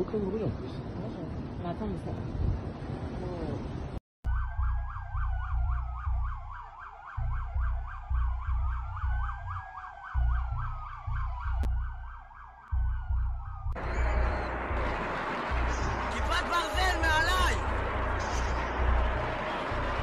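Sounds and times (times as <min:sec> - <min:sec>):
two-tone emergency siren: 0:04.2 - 0:20.0
deep low throb: 0:07.2 - 0:09.6, 0:10.2 - 0:12.1, 0:12.7 - 0:16.2.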